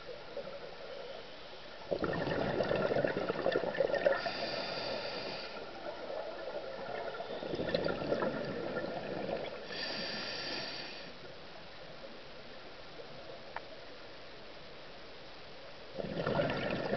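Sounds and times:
exhaled bubbles burbling: 1.9s - 9.7s, 16.0s - 16.9s
regulator hissing inhalation: 4.1s - 5.7s, 9.6s - 11.2s.

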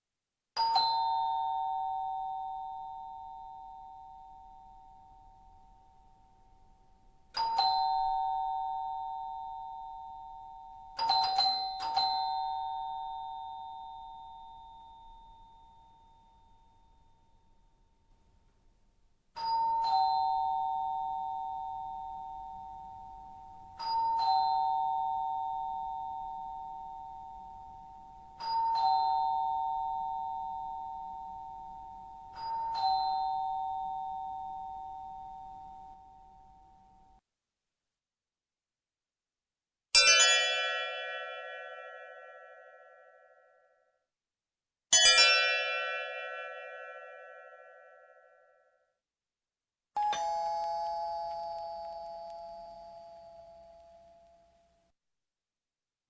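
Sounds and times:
two-tone door chime: 50.0s - 54.7s.

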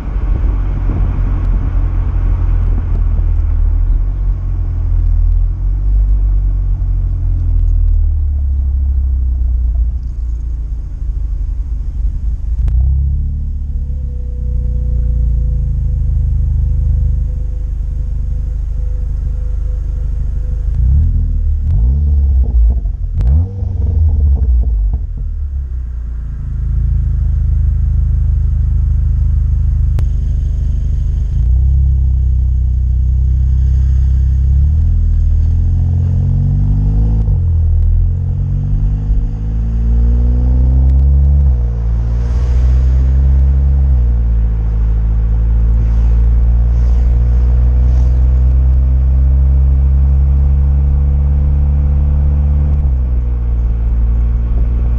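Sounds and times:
car engine idling and revving: 0.0s - 54.9s.

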